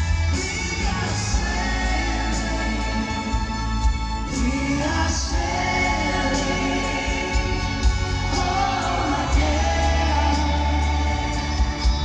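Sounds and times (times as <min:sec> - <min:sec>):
drums: 0:00.0 - 0:12.0
electric guitar: 0:00.0 - 0:12.0
keyboards: 0:00.0 - 0:12.0
male lead singer: 0:00.0 - 0:12.0
violins: 0:00.0 - 0:12.0.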